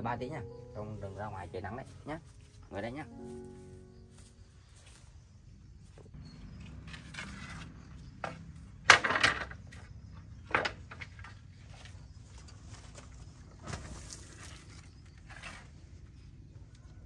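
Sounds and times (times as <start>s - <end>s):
wooden boards knocking together: 8.2s - 11.4s.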